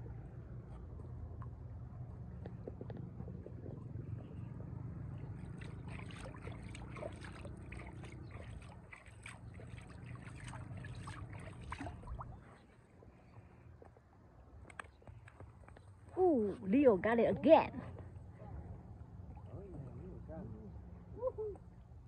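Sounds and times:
river water splashing and lapping: 3.6s - 13.7s
small crackling splashes: 5.3s - 12.5s.

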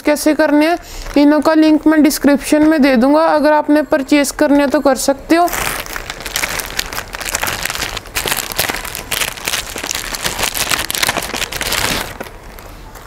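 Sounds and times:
plastic mailer bag crinkling: 5.4s - 13.0s.

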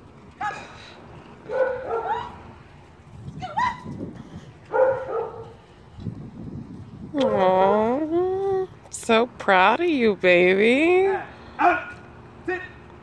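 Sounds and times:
dog barking: 1.5s - 2.4s, 4.7s - 5.6s, 11.1s - 12.0s.

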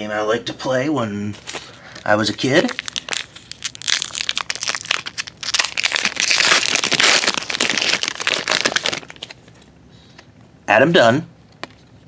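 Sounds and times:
card pack wrapper crinkling: 1.4s - 9.6s.

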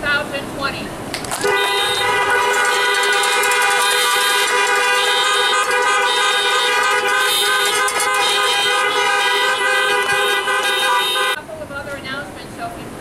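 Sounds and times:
car horns honking: 1.3s - 11.4s.

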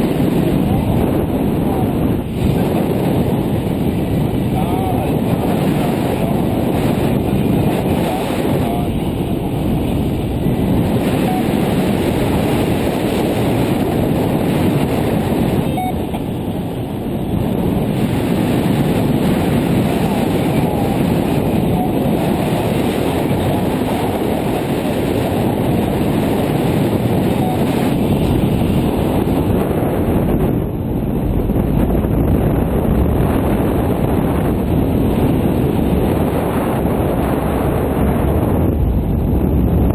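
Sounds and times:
wind noise rumble: 0.0s - 39.9s.

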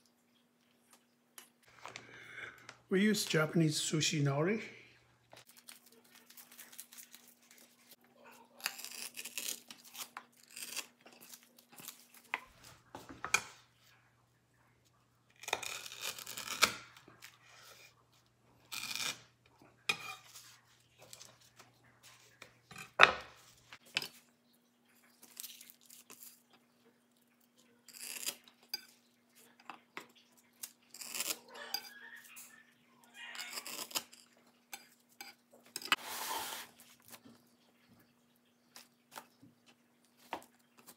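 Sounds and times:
nori crackling and tearing: 5.4s - 12.7s, 15.4s - 17.4s.

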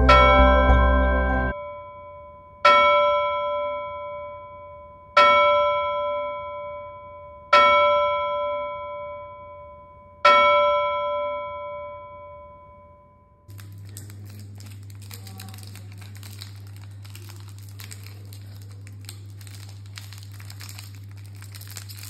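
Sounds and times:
bell-like tone ringing: 0.0s - 5.1s, 10.8s - 13.4s.

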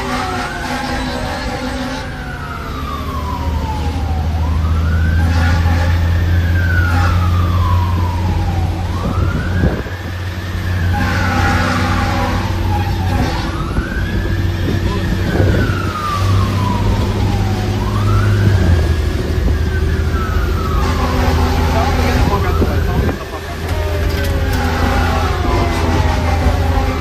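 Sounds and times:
diesel engine drone: 0.0s - 27.0s
fire engine siren wailing: 0.0s - 27.0s.

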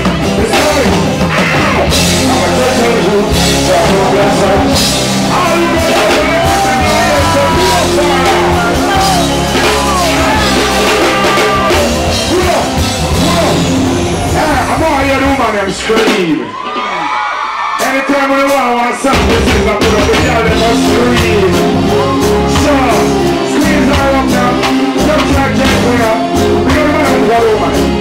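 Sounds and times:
bass guitar: 0.0s - 16.5s, 19.1s - 28.0s
drum kit: 0.0s - 17.0s, 17.8s - 28.0s
guitar: 0.0s - 17.2s, 19.1s - 28.0s
reggae band playing: 0.0s - 28.0s
man singing into a microphone: 1.6s - 12.0s.

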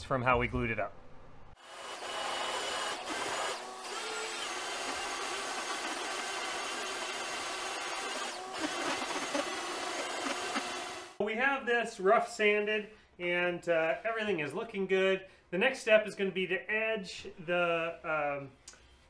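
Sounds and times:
belt sander running: 1.6s - 11.2s.

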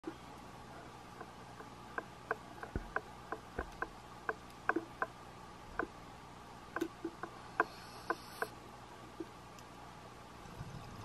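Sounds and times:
steady low hiss: 0.0s - 11.0s
underwater sharp clicks: 1.2s - 6.0s, 6.8s - 8.6s.

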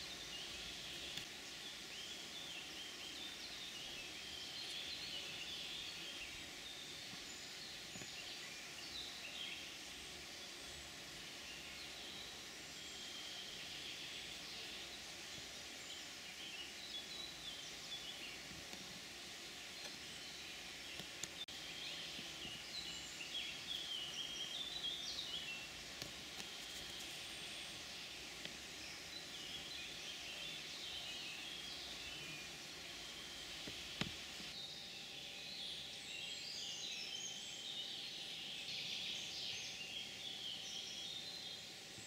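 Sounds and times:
small birds chirping: 0.0s - 42.0s
steady hiss: 0.0s - 42.0s.

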